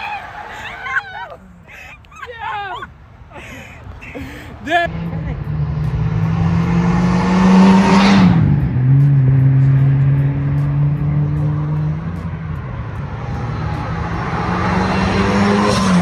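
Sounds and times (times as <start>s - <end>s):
car engine passing: 4.1s - 16.0s
second car engine approaching: 4.7s - 16.0s.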